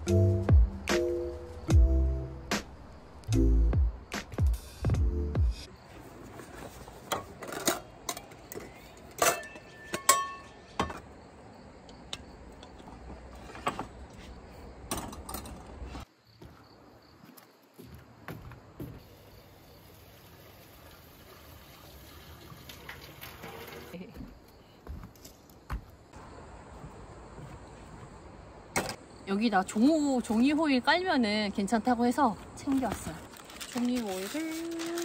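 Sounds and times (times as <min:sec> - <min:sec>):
tap water running into pot: 0:19.8 - 0:23.9.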